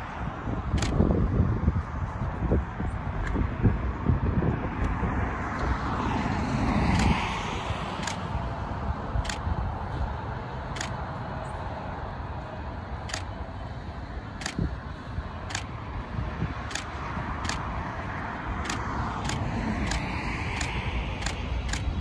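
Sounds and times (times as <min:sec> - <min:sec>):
freeway traffic rumble: 0:00.0 - 0:22.0
sharp faint ticks: 0:08.0 - 0:08.2, 0:09.2 - 0:09.5, 0:13.0 - 0:13.3, 0:14.4 - 0:14.6, 0:15.4 - 0:15.7, 0:16.6 - 0:17.7, 0:18.6 - 0:22.0.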